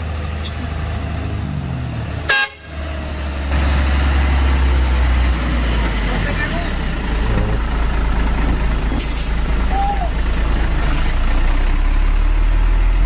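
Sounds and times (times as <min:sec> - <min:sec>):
diesel truck engine driving past: 0:00.0 - 0:13.0
truck horn toot: 0:02.3 - 0:02.8.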